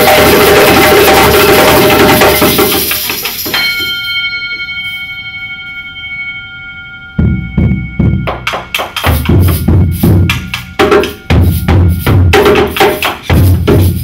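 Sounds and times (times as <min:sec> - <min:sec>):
djembes and drums playing: 0:00.0 - 0:03.7, 0:07.2 - 0:14.0
struck metal bell ringing: 0:00.0 - 0:14.0.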